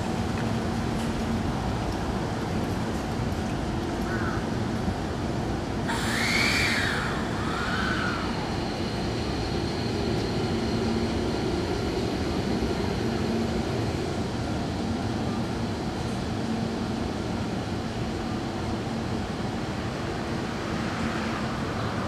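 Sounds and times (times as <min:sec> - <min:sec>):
electric train running: 0:07.1 - 0:14.8.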